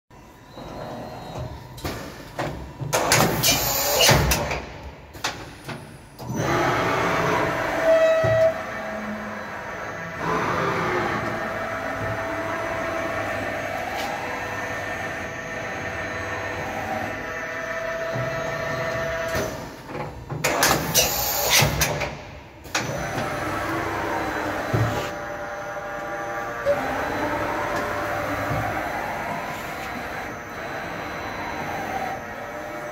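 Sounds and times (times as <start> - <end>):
machine whirring with high whine: 0.1 - 32.9.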